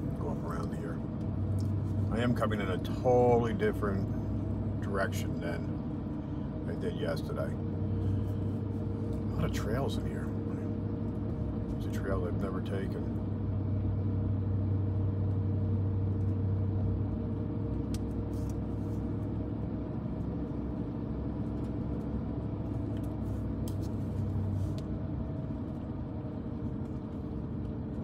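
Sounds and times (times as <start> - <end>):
car engine and tyres humming: 0.0 - 28.0.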